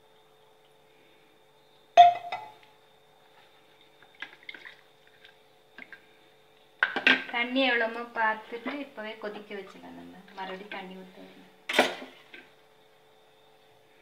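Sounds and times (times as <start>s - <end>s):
low steady hum: 0.0s - 14.0s
pots knocking and scraping: 2.0s - 2.7s.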